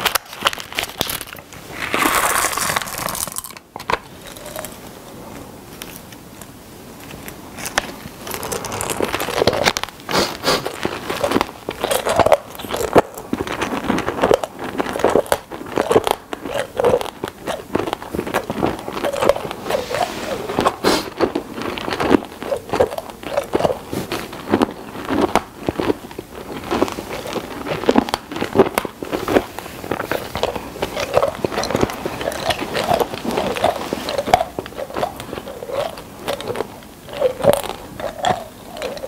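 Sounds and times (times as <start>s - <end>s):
candies crunched and chewed: 0.0s - 4.8s, 7.0s - 39.0s
plastic wrapper crinkling: 0.0s - 4.8s.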